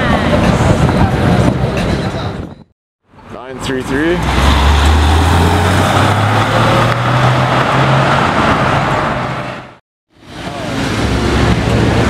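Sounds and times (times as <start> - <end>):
car engine accelerating past: 4.2 - 9.6.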